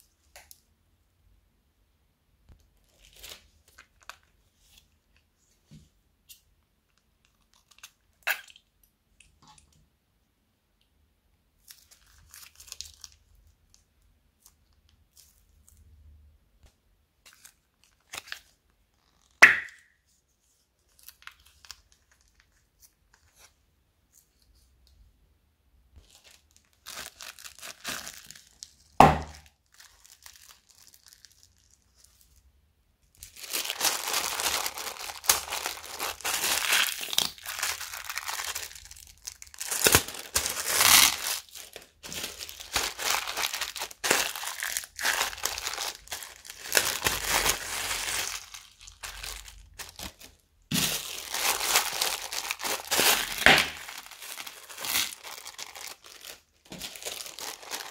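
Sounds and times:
plastic bags crinkling: 2.8s - 4.9s, 11.7s - 13.8s, 17.3s - 19.8s, 26.0s - 32.4s, 33.2s - 57.9s.

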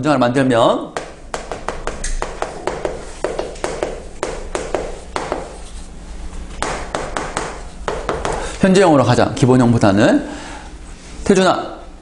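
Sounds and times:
chalk tapping on chalkboard: 1.0s - 5.9s, 6.5s - 8.4s.

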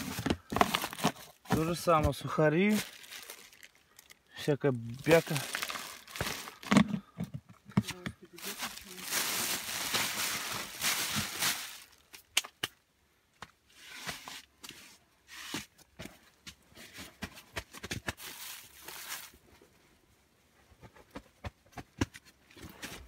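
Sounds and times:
plastic bags rustling: 0.0s - 7.0s, 8.3s - 12.3s, 18.2s - 19.4s.

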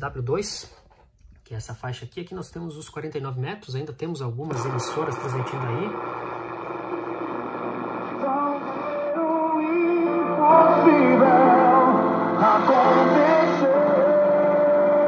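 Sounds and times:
music with singing on radio: 4.6s - 15.0s.

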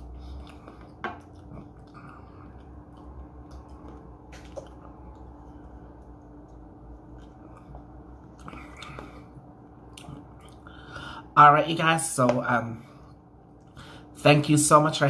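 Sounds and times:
person drinking from a cup: 0.0s - 10.7s
low room hum: 0.0s - 15.0s.

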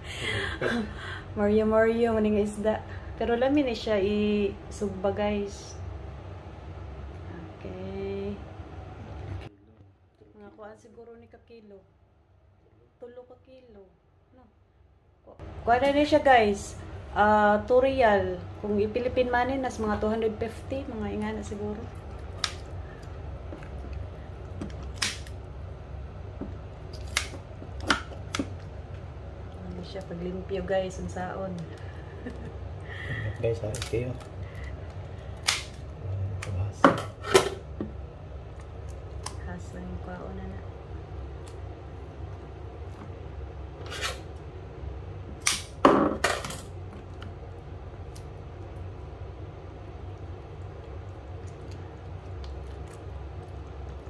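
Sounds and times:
low steady hum: 0.0s - 54.0s
kitchen scissors snipping: 26.9s - 28.5s.

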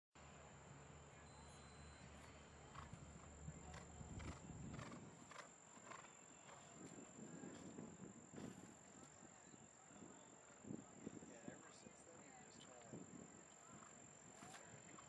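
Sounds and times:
horse hoofbeats on turf: 2.2s - 9.2s.

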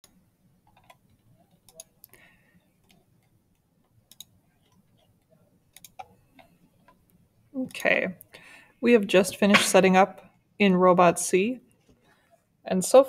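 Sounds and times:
computer mouse clicks: 0.0s - 2.2s, 2.8s - 3.4s, 4.0s - 5.1s, 5.7s - 7.9s.

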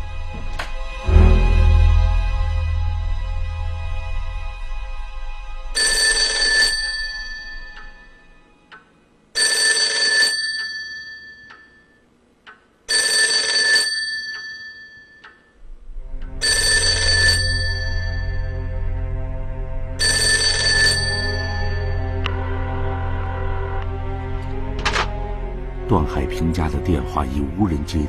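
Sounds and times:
low music: 0.0s - 9.3s, 15.6s - 28.0s
telephone bell ringing: 5.8s - 8.2s, 9.4s - 12.0s, 12.9s - 15.5s, 16.4s - 18.5s, 20.0s - 22.0s.

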